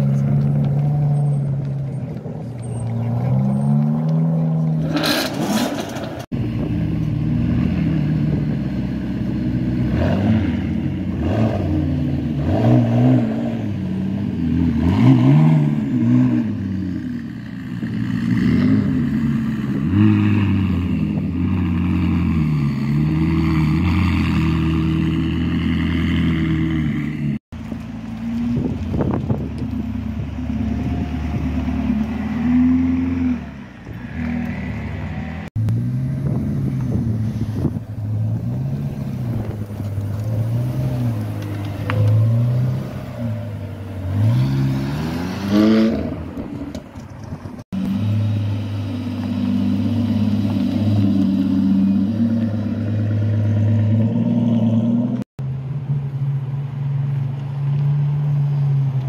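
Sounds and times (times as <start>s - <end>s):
sports car engines revving: 0.0s - 59.0s.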